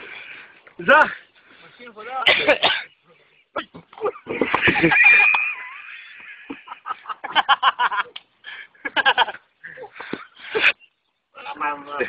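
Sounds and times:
men laughing: 3.7s - 10.9s.

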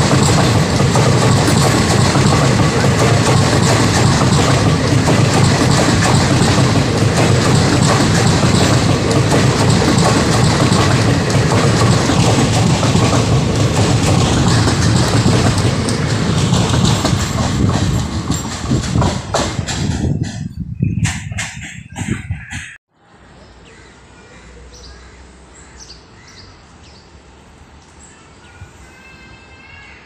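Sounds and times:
clickety-clack over rail joints: 0.0s - 22.8s
train wheels rumbling on rails: 0.0s - 22.8s.

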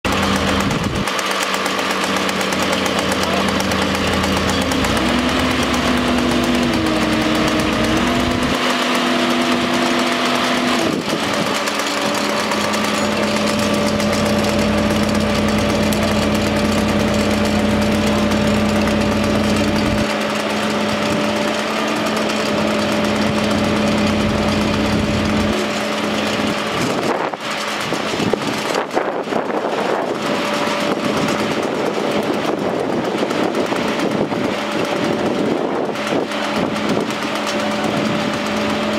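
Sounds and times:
fire engine motor humming: 0.0s - 38.9s.

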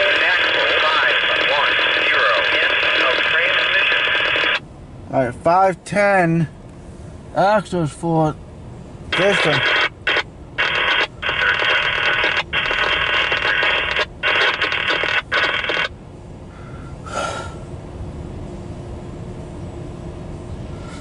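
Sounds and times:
radio squawk: 0.0s - 4.6s, 9.2s - 15.9s
radio-filtered automated voice: 0.0s - 6.5s, 9.1s - 15.9s
low rumble of passing train: 4.6s - 9.1s, 15.9s - 21.0s.

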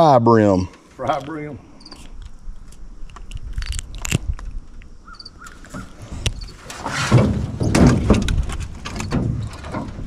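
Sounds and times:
bird calling: 5.0s - 6.6s.

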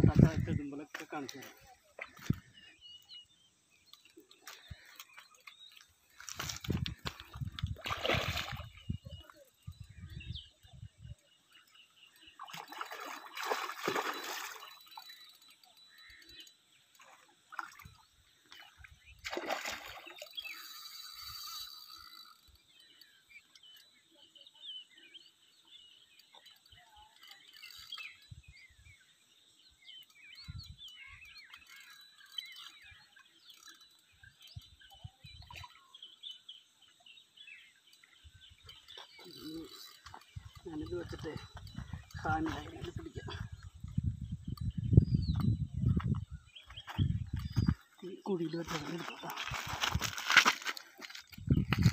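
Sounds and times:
faint bird chirps: 0.0s - 51.9s
fish splashing water: 7.8s - 8.8s, 12.4s - 15.0s, 19.2s - 20.7s.

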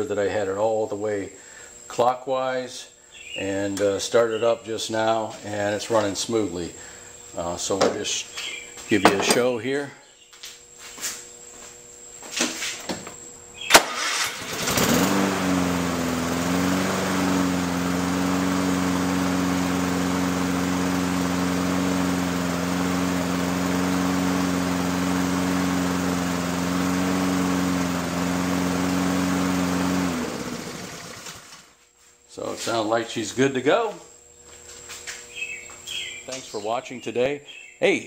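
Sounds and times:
lawn mower engine running: 13.5s - 31.8s.

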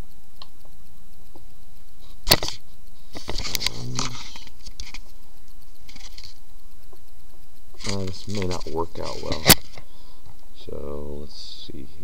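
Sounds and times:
rustling and scraping: 1.3s - 10.5s.

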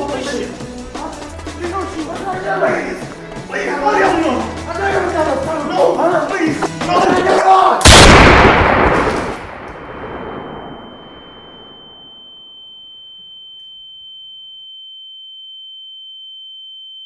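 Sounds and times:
loud gunshot with echo: 7.8s - 10.9s
high-pitched ringing tone: 10.4s - 17.0s.

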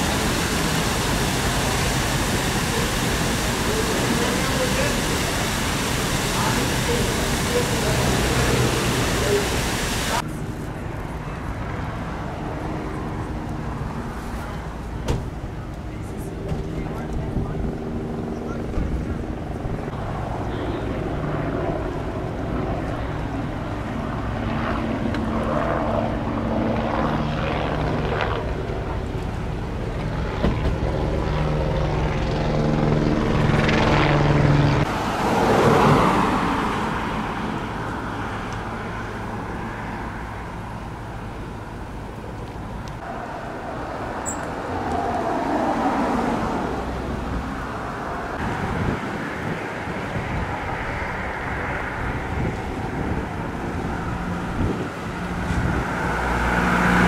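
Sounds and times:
loud rush of noise: 0.0s - 57.0s
steady engine drone: 0.0s - 57.0s.

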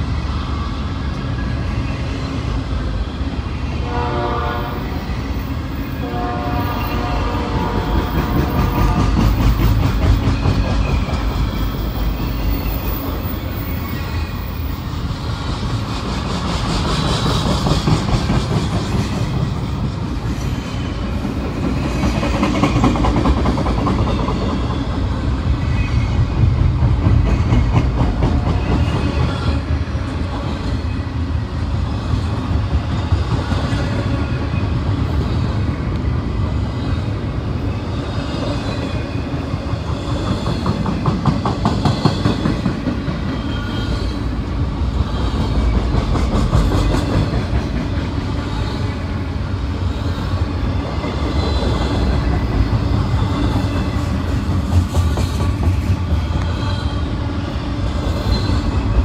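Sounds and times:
freight train rumbling: 0.0s - 59.0s
steel wheels clacking over rail joints: 6.7s - 30.9s, 38.4s - 49.1s, 50.6s - 56.9s.

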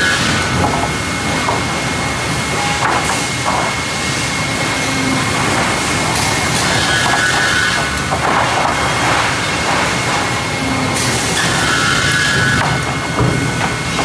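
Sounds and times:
machine din with high tone: 4.2s - 8.0s.

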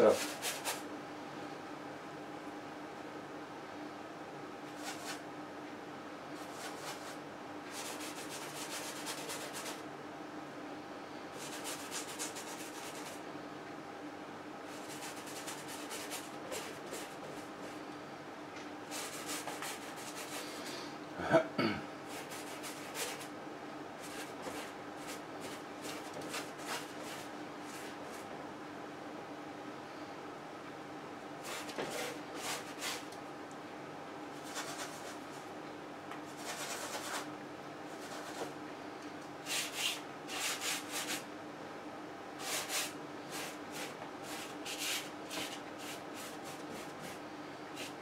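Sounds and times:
paintbrush scrubbing on canvas: 0.0s - 0.8s, 4.8s - 5.2s, 6.4s - 9.8s, 11.4s - 13.2s, 14.7s - 17.8s, 18.9s - 20.6s, 22.1s - 23.3s, 24.0s - 28.2s, 31.4s - 33.1s, 34.4s - 35.3s, 36.3s - 37.3s, 37.9s - 38.5s, 39.4s - 41.2s, 42.4s - 47.2s, 47.8s - 48.0s
steady low hum: 0.0s - 48.0s.

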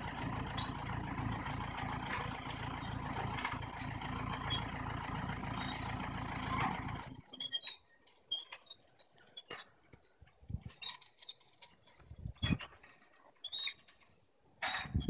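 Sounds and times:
truck engine running: 0.0s - 7.4s.

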